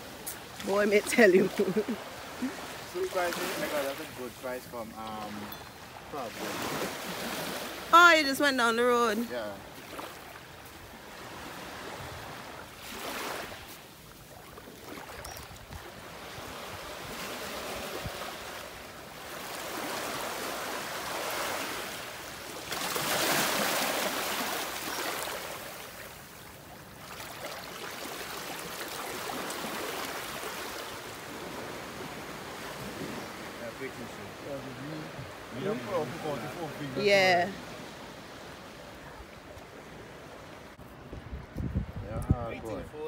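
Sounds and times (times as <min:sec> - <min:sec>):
small waves lapping on shore: 0:00.0 - 0:43.0.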